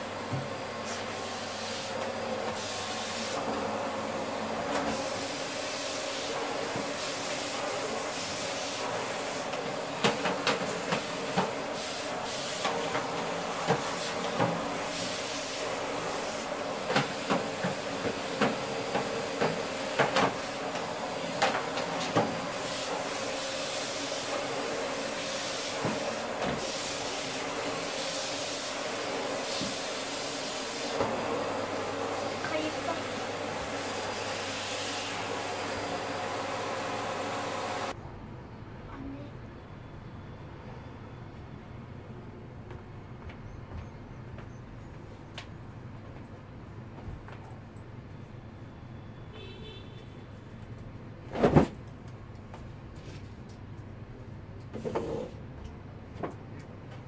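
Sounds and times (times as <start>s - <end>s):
vacuum cleaner running: 0.0s - 38.0s.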